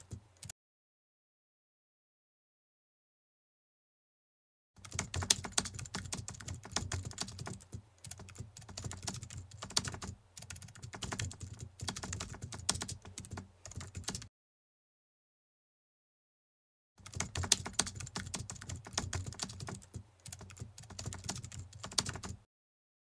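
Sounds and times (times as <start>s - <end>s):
keyboard typing clicks: 0.0s - 0.5s, 4.8s - 14.3s, 17.0s - 22.4s.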